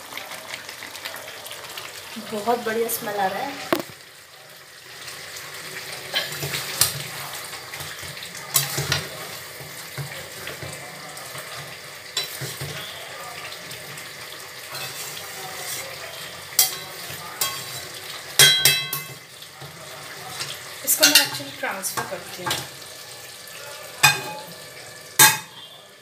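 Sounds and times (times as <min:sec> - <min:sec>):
food sizzling in a metal pan: 0:00.0 - 0:26.0
metal spatula scraping a pan: 0:06.1 - 0:13.1, 0:14.6 - 0:19.1.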